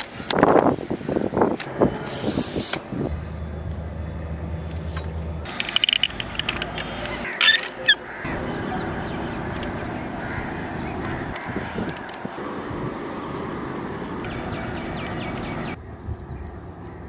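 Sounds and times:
low steady hum: 2.9s - 7.2s
bird calls: 3.1s - 12.3s, 14.1s - 17.0s
tripod leg locks clicking: 5.5s - 7.8s.

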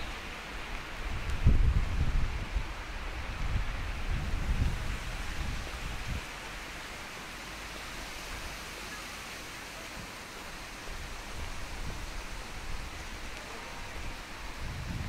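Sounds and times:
wind buffeting microphone: 0.0s - 6.8s, 10.7s - 15.0s
steady wind hiss: 0.0s - 15.0s.

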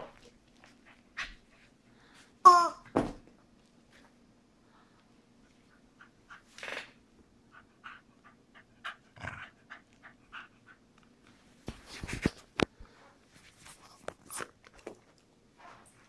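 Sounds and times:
dog panting: 5.4s - 6.6s, 7.4s - 11.3s.

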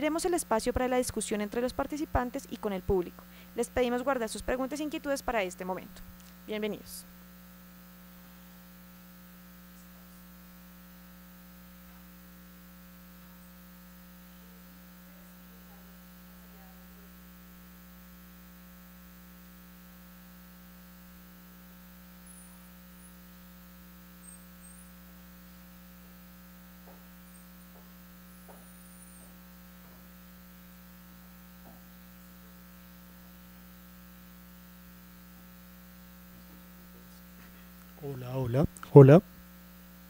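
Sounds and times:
electrical mains hum: 0.0s - 40.0s
faint knocks: 26.8s - 30.1s.

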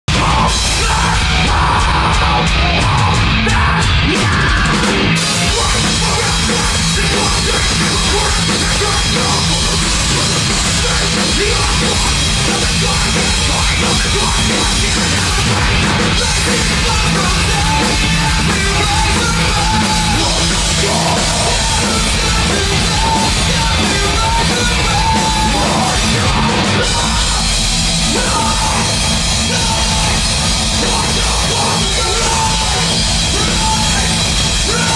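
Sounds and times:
drum kit: 0.0s - 34.9s
heavy guitars and bass: 0.0s - 34.9s
shouted vocals: 0.0s - 34.9s.

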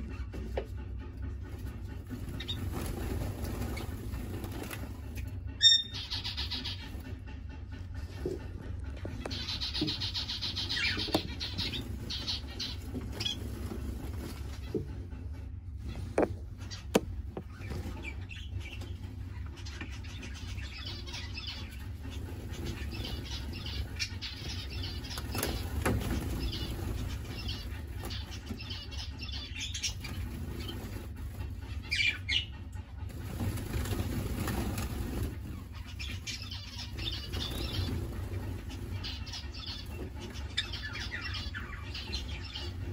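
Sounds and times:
finches chirping: 5.6s - 7.2s, 8.9s - 13.9s, 33.9s - 42.9s.

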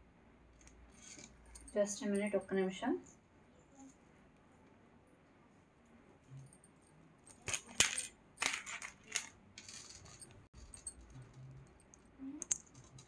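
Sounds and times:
metal jewellery clinking: 0.6s - 2.6s, 6.2s - 13.0s.

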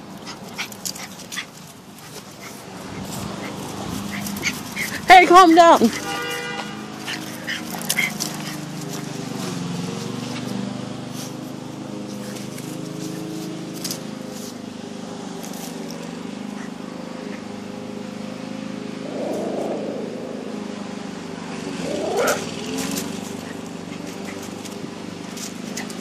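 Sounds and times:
dog scratching at gravel: 0.1s - 10.6s, 11.2s - 14.6s, 15.4s - 16.2s, 22.2s - 26.0s
wavering sounds: 18.7s - 22.6s.

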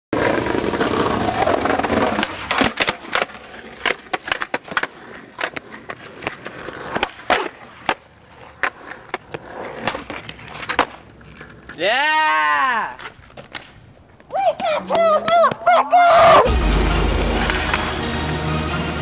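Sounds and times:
skateboard wheels rolling on concrete: 0.1s - 19.0s
skateboard clacking on ground: 0.2s - 11.9s, 13.0s - 15.8s.

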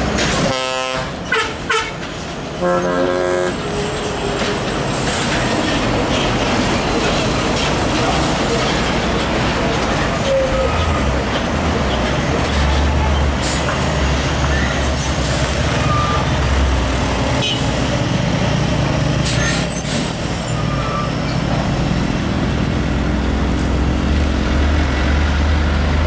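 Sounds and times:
truck horn blast: 0.4s - 2.0s, 2.6s - 3.6s, 17.4s - 17.8s
diesel truck engines running: 3.6s - 26.0s.

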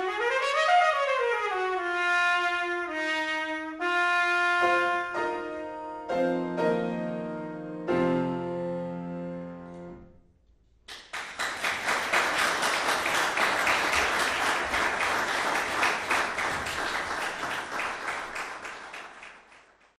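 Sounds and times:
piano chord: 4.6s - 10.3s
audience applauding: 10.9s - 20.0s.

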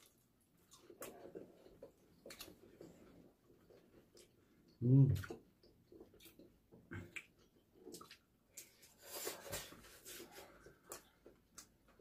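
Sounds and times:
eating sounds: 0.0s - 9.6s.

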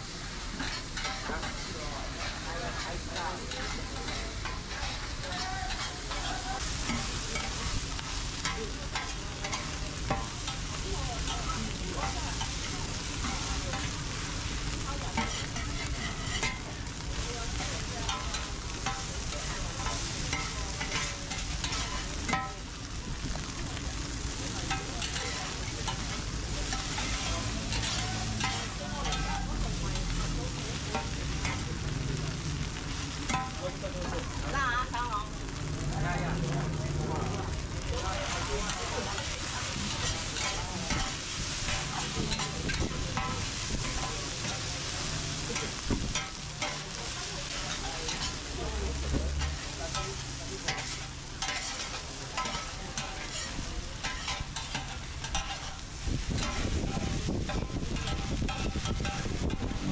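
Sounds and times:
food sizzling on pan: 0.0s - 59.9s
metal spatulas scraping pan: 0.5s - 10.6s, 15.1s - 16.6s, 17.6s - 22.6s, 24.7s - 31.6s, 38.2s - 48.5s, 49.4s - 59.8s.

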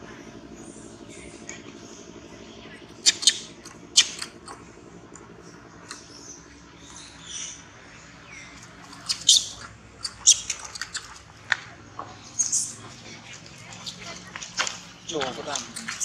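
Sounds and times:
monkeys screaming: 2.8s - 4.6s, 5.4s - 16.0s.

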